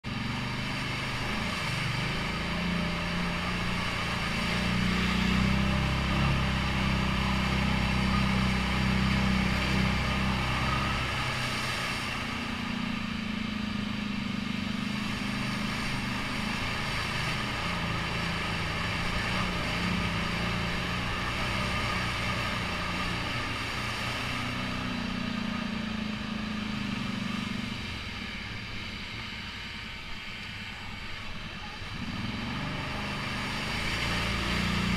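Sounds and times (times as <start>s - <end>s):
quad bike engine revving: 0.0s - 28.9s, 31.7s - 34.9s.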